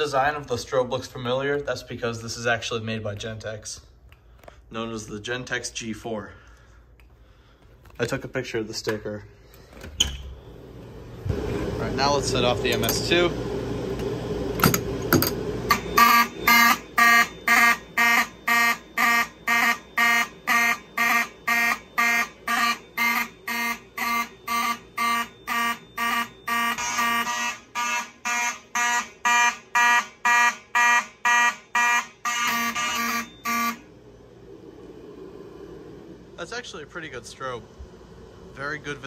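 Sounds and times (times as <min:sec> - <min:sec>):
fire alarm horns pulsing: 0:15.7 - 0:34.0.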